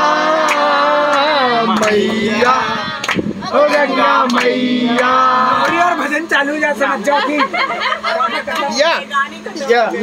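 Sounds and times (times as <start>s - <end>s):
group singing unaccompanied: 0.0s - 7.1s
hand claps: 0.4s - 5.8s.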